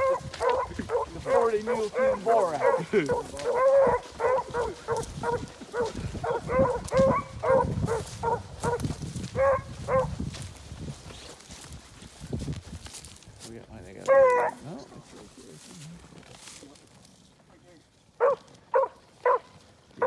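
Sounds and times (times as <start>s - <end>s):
beagles barking: 0.0s - 10.2s, 14.0s - 14.9s, 18.2s - 20.0s.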